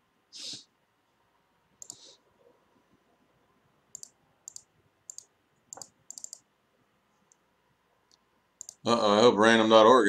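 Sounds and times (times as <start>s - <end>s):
computer mouse clicks: 1.8s - 2.1s, 3.9s - 6.5s, 8.1s - 8.8s.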